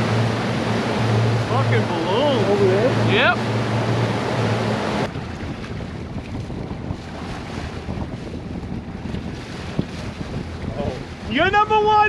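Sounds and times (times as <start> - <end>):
outboard motor running: 0.0 - 12.0
rushing water: 0.0 - 12.0
wind on microphone: 2.6 - 12.0.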